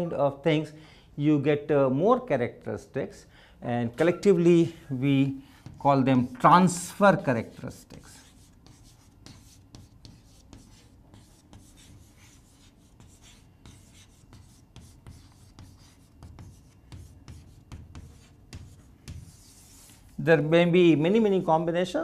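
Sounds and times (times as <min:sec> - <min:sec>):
chalk scratching on chalkboard: 0:05.4 - 0:20.3.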